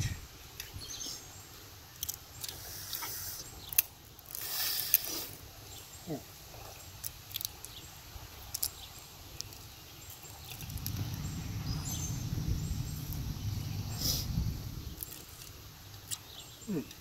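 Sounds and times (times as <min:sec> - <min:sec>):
crawfish shells cracking: 0:01.9 - 0:03.0, 0:03.6 - 0:05.1, 0:06.6 - 0:11.7, 0:14.8 - 0:17.0
low rumble: 0:10.4 - 0:16.0.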